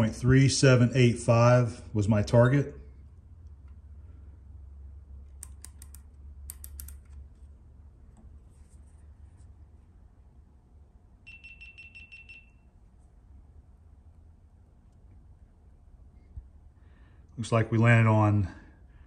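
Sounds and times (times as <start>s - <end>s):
micrometer ratchet clicking: 5.4s - 7.2s
high pulsing beep: 11.3s - 12.7s.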